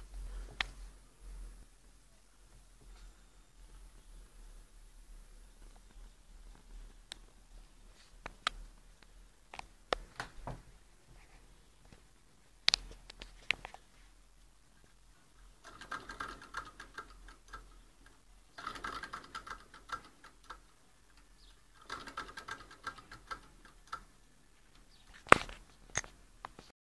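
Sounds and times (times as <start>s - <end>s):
engine linkage ticking: 15.5s - 24.3s.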